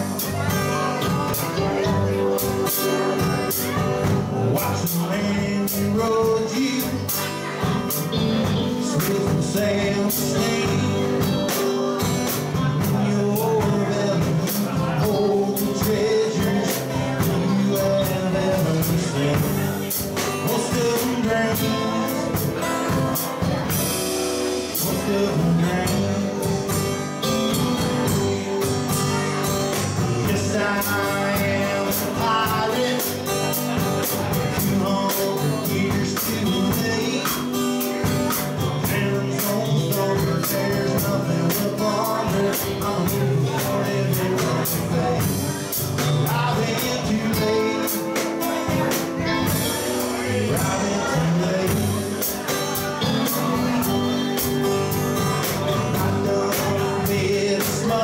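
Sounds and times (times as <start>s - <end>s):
drum kit: 0.0s - 58.0s
electric lead guitar: 0.0s - 58.0s
man singing: 0.0s - 58.0s
strummed acoustic guitar: 0.0s - 58.0s.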